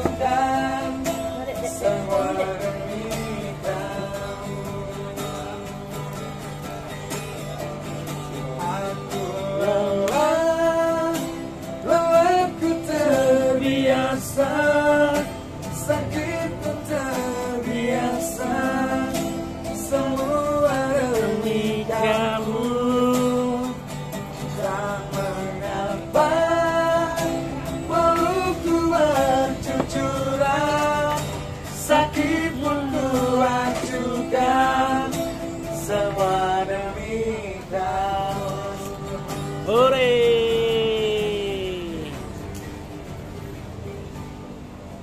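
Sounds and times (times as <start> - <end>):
second voice singing along: 0.0 - 5.8, 19.9 - 23.7, 35.9 - 42.4
man singing a ballad: 0.0 - 6.3, 8.4 - 42.2
strummed acoustic guitar: 0.0 - 45.0.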